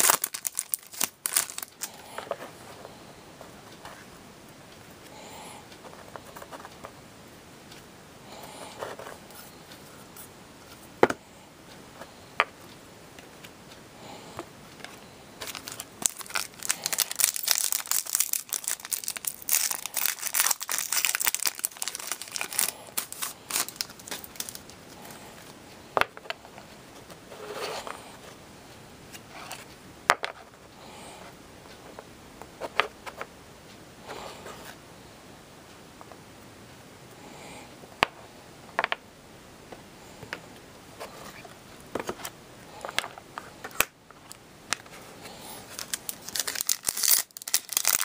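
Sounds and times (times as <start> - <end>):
foil pack tearing and crinkling: 0.0 - 1.8, 15.5 - 24.6, 45.8 - 48.0.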